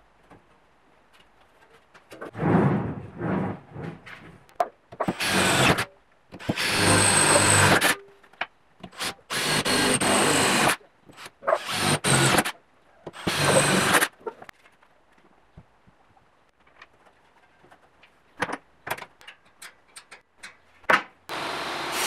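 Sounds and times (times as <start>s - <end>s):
electric drill boring through metal: 6.4s - 8.0s, 9.3s - 10.8s, 13.2s - 14.1s.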